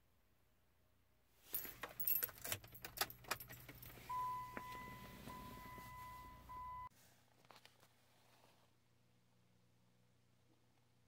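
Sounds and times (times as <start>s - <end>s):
keys jangling: 1.5s - 4.0s
steady electronic beep: 4.1s - 6.9s.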